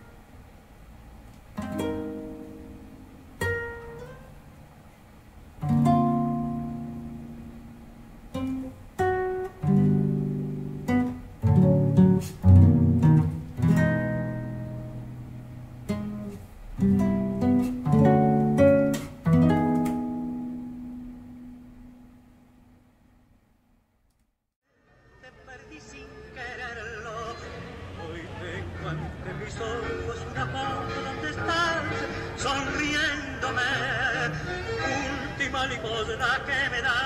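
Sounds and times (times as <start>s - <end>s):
plucked string instrument: 1.5s - 4.5s, 5.6s - 22.3s.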